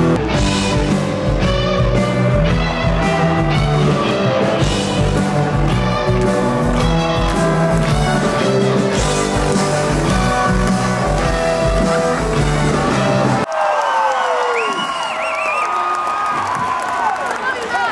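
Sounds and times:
rock band playing: 0.0s - 13.5s.

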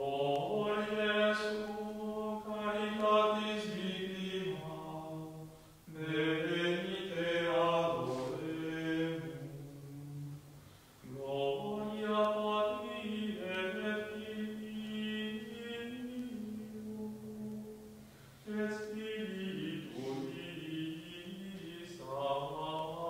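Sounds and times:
slow liturgical chant: 0.0s - 23.0s.

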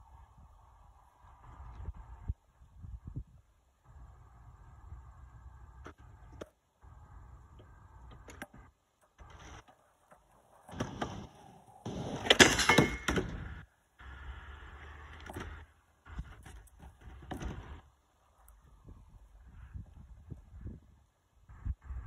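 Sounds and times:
skateboard scraping on metal rail: 8.2s - 18.4s.

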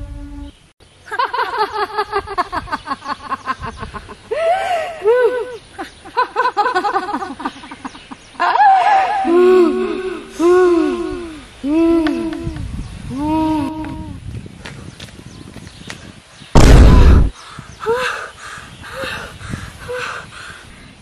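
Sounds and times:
young woman laughing loudly: 1.1s - 10.6s.

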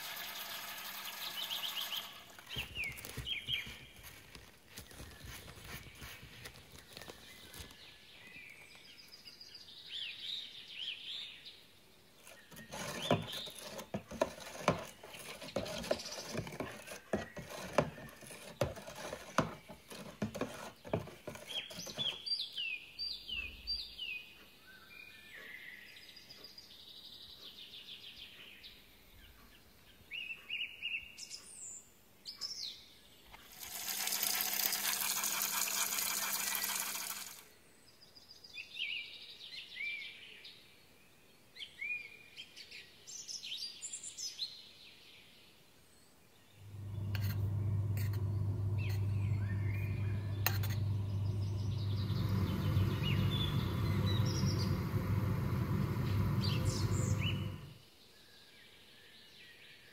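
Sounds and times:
plastic scoop clicking and scraping: 0.0s - 7.9s, 12.2s - 22.2s, 33.3s - 37.4s, 46.7s - 52.1s
birds chirping: 0.0s - 10.9s, 12.2s - 31.7s, 46.4s - 57.8s.

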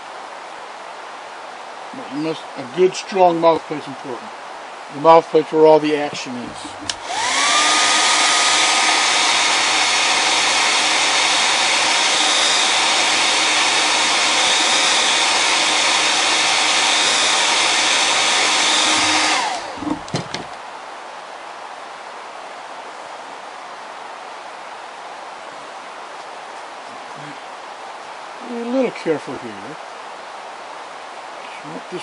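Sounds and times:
electric blower motor whine: 6.1s - 20.6s.

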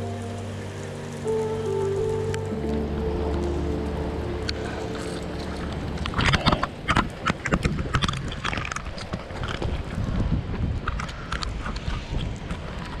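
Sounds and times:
rain hiss: 0.0s - 10.0s.

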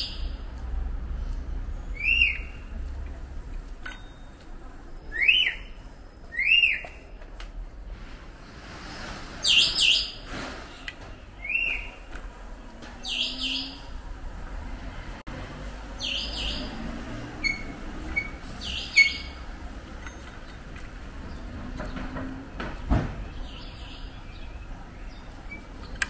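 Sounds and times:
birds chirping: 1.6s - 2.8s, 12.9s - 14.1s, 15.8s - 26.0s.

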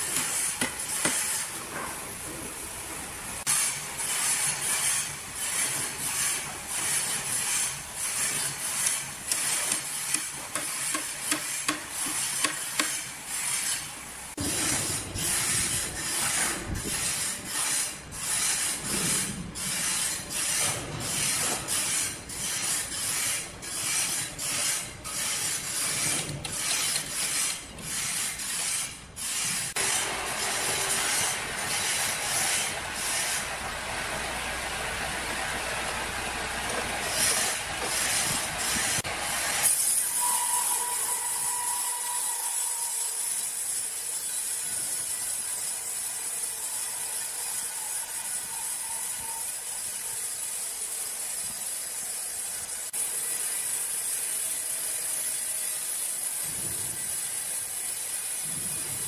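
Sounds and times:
band saw hissing and clattering: 0.0s - 33.6s, 36.6s - 59.0s.

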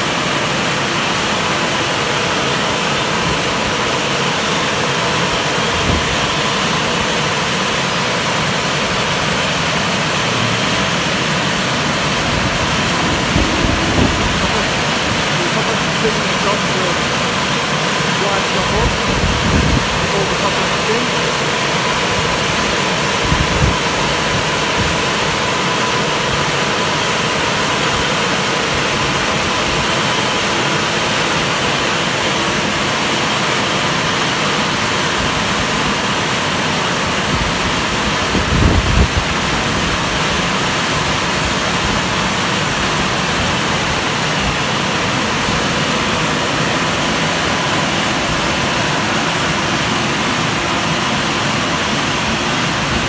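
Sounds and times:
car wash dryer air rushing: 0.0s - 53.0s.

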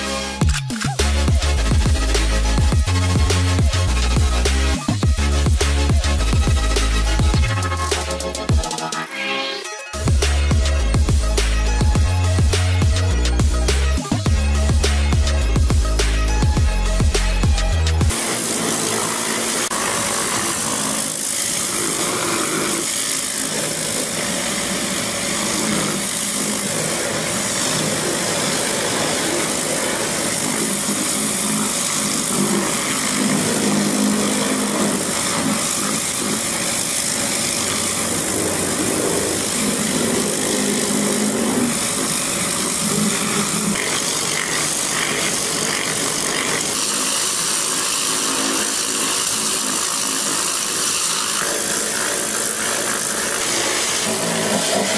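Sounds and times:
engine running: 10.0s - 54.9s
pressure washer water jet hiss: 18.1s - 54.9s.

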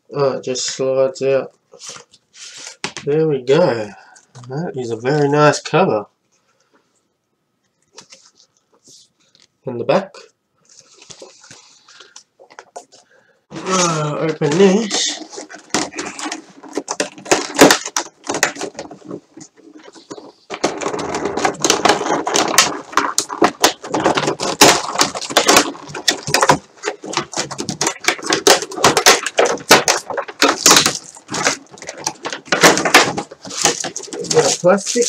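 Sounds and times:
plastic packaging crinkling: 13.6s - 35.0s.

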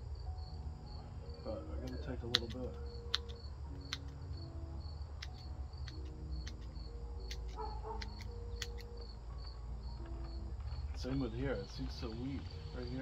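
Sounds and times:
crickets chirping: 0.0s - 13.0s
pruning shears snipping: 1.8s - 4.1s.

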